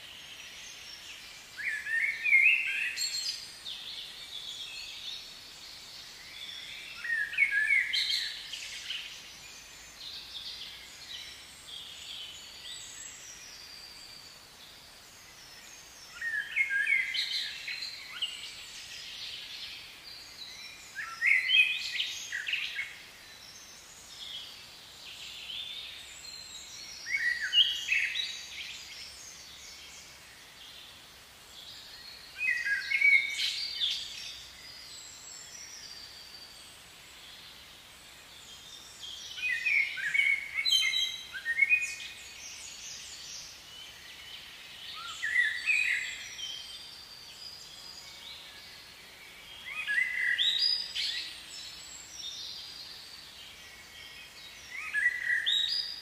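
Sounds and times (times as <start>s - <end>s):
faint steady hiss: 0.0s - 56.0s
songbird singing: 0.0s - 56.0s.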